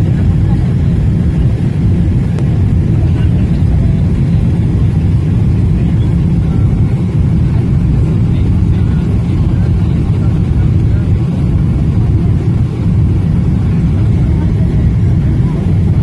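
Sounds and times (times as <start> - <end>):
airplane cabin engine rumble: 0.0 - 16.0.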